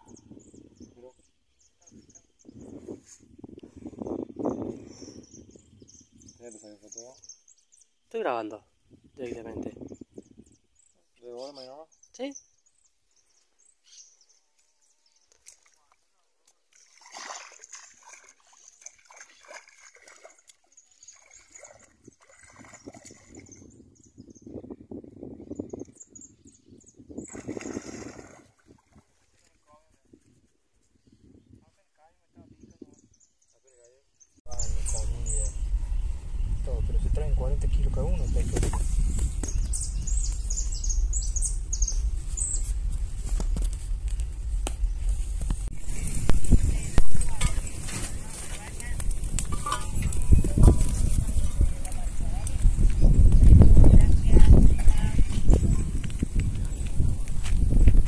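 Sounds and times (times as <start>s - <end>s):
wind rumble on microphone: 0.0s - 1.2s, 1.8s - 7.1s, 8.8s - 10.9s, 21.7s - 29.2s, 29.8s - 33.2s, 34.4s - 58.0s
small birds chirping: 0.0s - 3.1s, 3.7s - 16.7s, 18.2s - 28.4s, 32.4s - 42.9s
feet wading through muddy water: 15.3s - 23.6s, 27.3s - 29.7s
high chirping: 38.0s - 42.9s.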